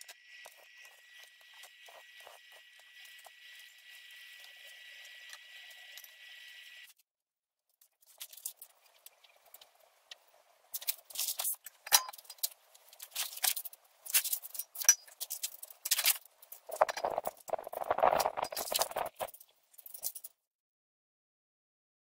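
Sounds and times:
sharp clicks and scrapes: 7.7 - 20.4.

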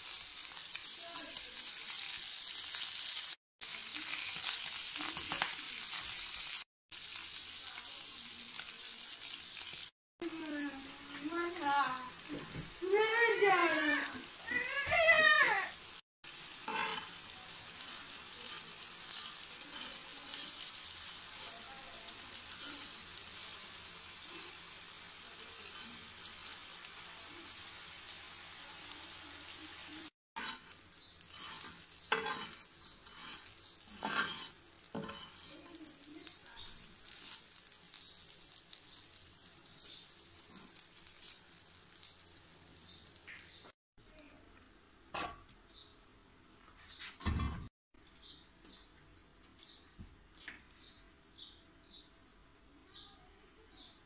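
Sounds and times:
meat sizzling: 0.0 - 43.8.

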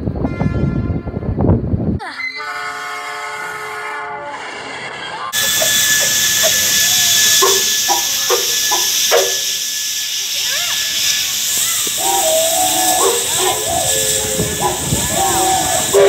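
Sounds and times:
low train rumble: 0.0 - 16.0
locomotive air horn chord: 0.3 - 1.3, 2.4 - 4.4, 5.4 - 9.5, 12.0 - 16.0
steam venting hiss: 5.4 - 16.0.

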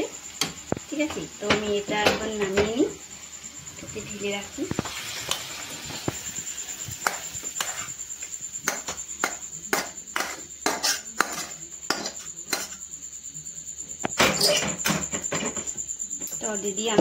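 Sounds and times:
metal spatula scraping a pan: 7.0 - 8.0, 9.7 - 12.8, 14.2 - 15.7.

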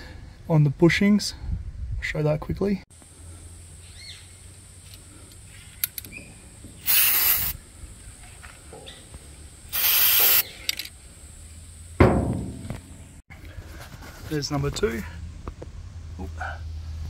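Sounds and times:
aerosol can spraying: 6.8 - 7.6, 9.7 - 10.4.

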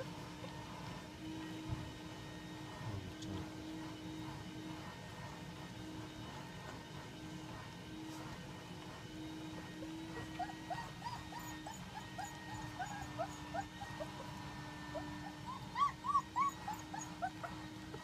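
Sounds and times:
puppies whimpering and yipping: 9.3 - 18.0
puppy yelps: 9.8 - 17.8.

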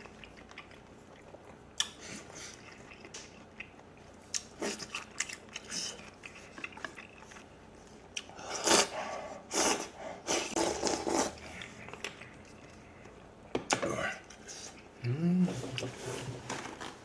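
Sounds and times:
light chewing: 0.0 - 8.8, 10.5 - 13.3
loud slurping: 8.4 - 11.8.

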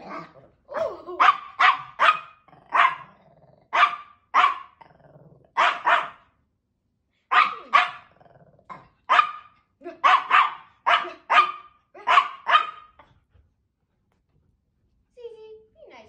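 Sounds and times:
dog growling: 0.0 - 1.2, 2.4 - 3.8, 4.7 - 5.6, 7.5 - 9.0
dog barking: 0.0 - 4.8, 5.6 - 6.3, 7.3 - 13.1.

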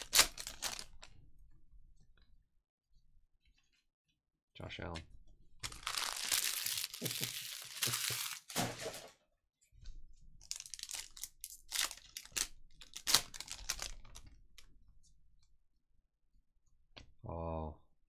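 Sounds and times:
foil wrapper tearing: 0.0 - 1.0, 5.6 - 9.0, 10.4 - 14.3
foil wrapper crinkling: 0.0 - 1.1, 5.6 - 9.1, 10.4 - 14.4.

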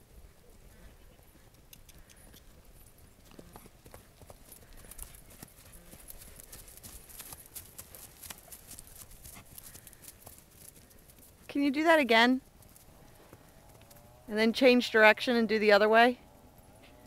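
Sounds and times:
hoofbeats on grass: 0.0 - 14.7.

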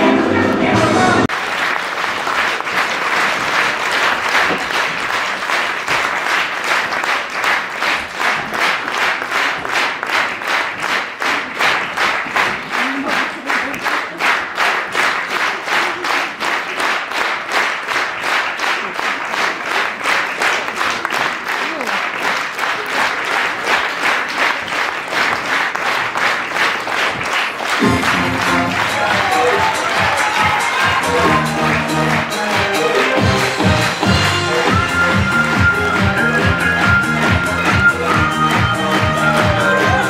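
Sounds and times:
music: 0.0 - 1.3, 27.8 - 40.0
audience applauding: 1.2 - 40.0
rhythmic clapping in unison: 1.2 - 40.0.

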